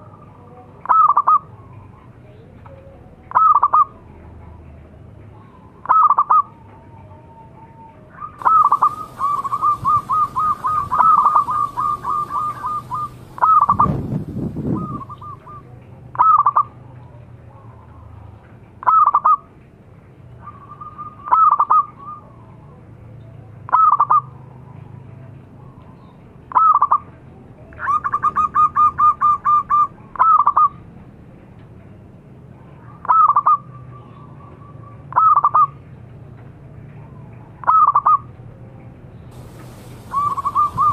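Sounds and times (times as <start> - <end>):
dove cooing: 8.4 - 15.6, 39.4 - 40.9.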